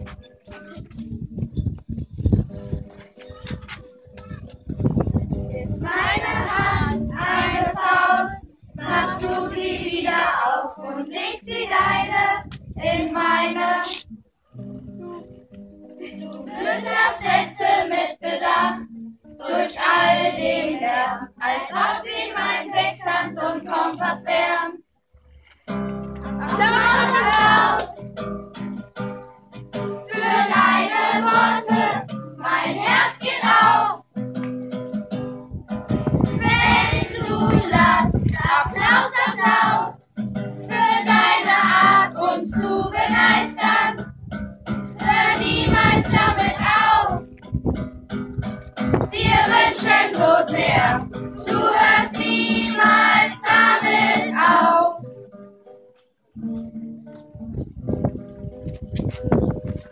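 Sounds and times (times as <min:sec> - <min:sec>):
children and woman singing: 0:05.6 - 0:14.0, 0:16.0 - 0:24.8, 0:26.4 - 0:28.1, 0:30.1 - 0:34.0, 0:36.4 - 0:44.0, 0:45.0 - 0:47.2, 0:49.2 - 0:55.0
strummed acoustic guitar: 0:25.2 - 0:59.7.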